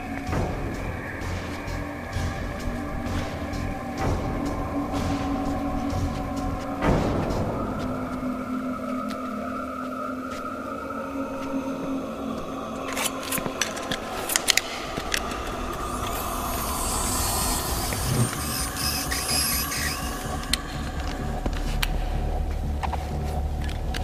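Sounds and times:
low rumble: 11.8 - 24.0
hiss: 14.6 - 21.4.

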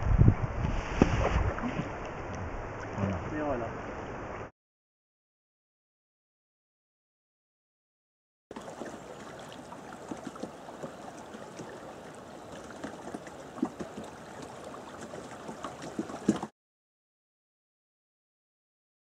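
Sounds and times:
river water rushing over rocks: 8.5 - 16.5.

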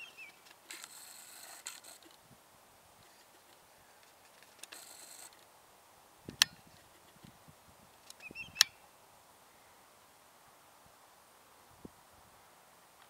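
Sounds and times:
short hiss: 0.3 - 2.4
sharp clicks: 3.5 - 5.5, 6.3 - 6.6, 8.0 - 8.8.

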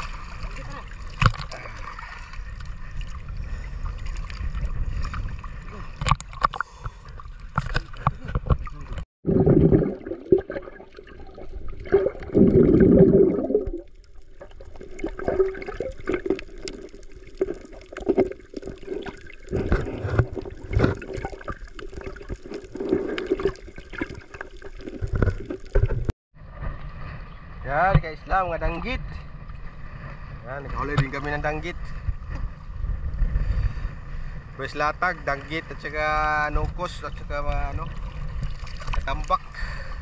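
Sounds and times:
water gurgling and splashing: 0.0 - 26.1, 36.8 - 40.0.

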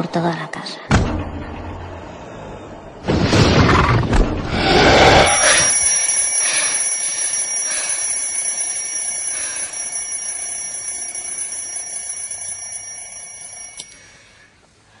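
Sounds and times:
alarm clock ringing: 5.2 - 14.5.

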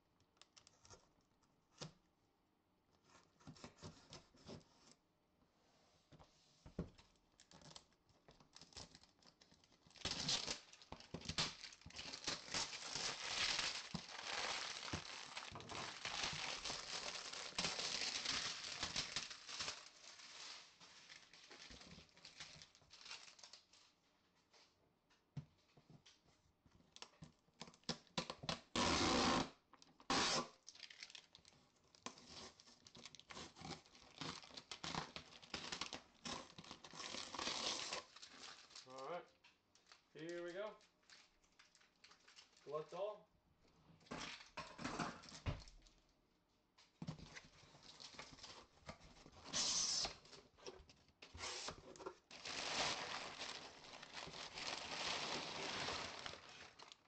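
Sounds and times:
shrink-wrap crinkling and tearing: 7.4 - 23.8, 30.0 - 43.1, 47.3 - 50.6, 51.2 - 57.0
tape tearing off box: 28.7 - 30.6, 49.4 - 50.2, 51.3 - 52.0.

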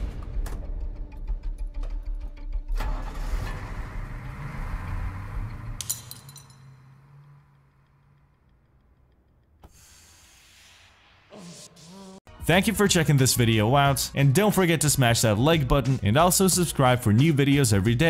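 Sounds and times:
heavy vehicle engine rumbling: 2.8 - 9.1
glass clinking and scattering: 5.8 - 6.8.

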